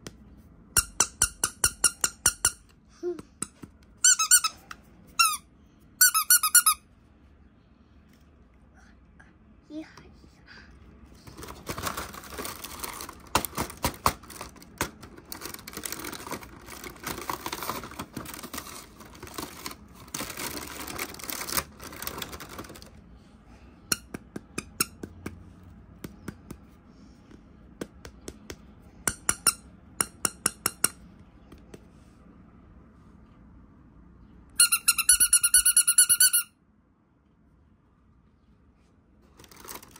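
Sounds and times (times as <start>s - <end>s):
packaging rustling and crinkling: 11.2s - 22.9s, 39.3s - 39.9s.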